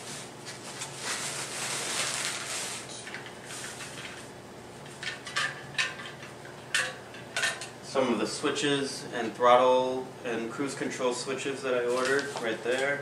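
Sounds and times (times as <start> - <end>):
plastic wrap crinkling: 0.4 - 3.6, 11.8 - 13.0.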